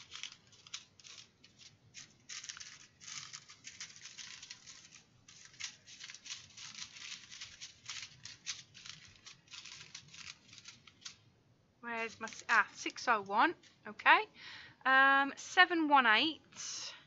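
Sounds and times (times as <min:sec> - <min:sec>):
plastic bags crinkling: 0:00.0 - 0:11.3, 0:11.9 - 0:13.0.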